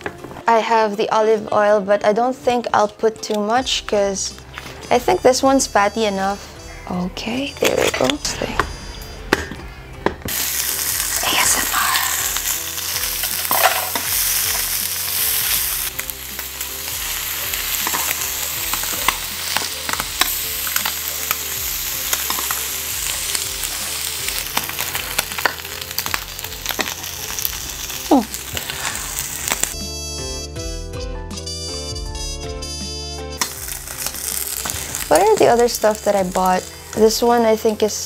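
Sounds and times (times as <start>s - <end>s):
meat sizzling in a pan: 10.3s - 29.8s, 33.4s - 38.0s.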